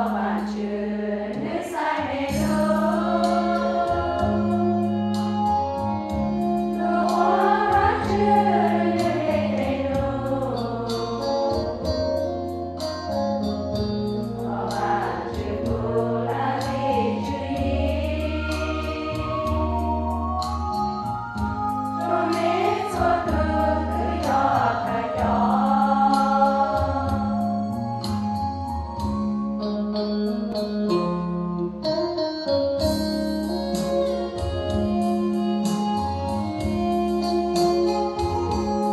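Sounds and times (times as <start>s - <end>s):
women's choir singing a hymn: 0.0s - 5.2s, 6.7s - 12.0s, 14.3s - 20.6s, 21.9s - 27.8s
sustained low accompaniment: 13.6s - 29.9s.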